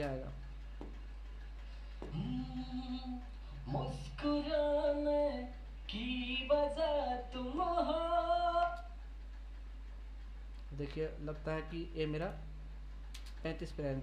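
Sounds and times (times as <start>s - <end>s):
person singing with delay effect: 2.1s - 9.0s.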